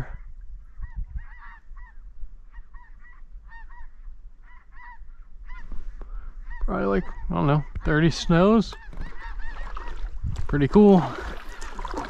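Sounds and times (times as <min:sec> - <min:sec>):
geese honking in flight: 0:00.8 - 0:05.6, 0:08.2 - 0:10.1.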